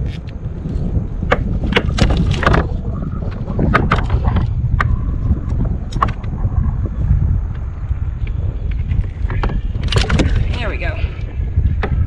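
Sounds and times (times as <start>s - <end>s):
wind rumbling on microphone: 0.0s - 12.0s
knocks and clicks of gear: 9.2s - 10.4s.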